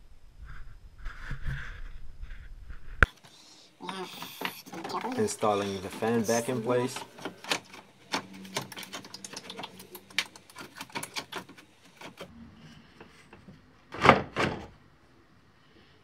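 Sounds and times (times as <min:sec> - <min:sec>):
loud plastic knocks: 0:13.3 - 0:14.8.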